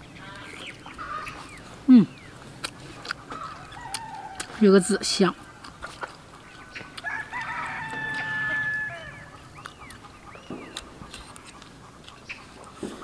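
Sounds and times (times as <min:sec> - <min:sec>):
rooster crowing: 0:03.4 - 0:04.6, 0:06.7 - 0:09.4.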